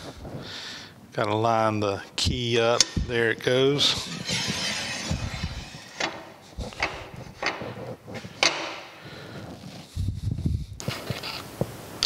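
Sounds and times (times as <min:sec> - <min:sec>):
short scraping: 0:03.8 - 0:07.2.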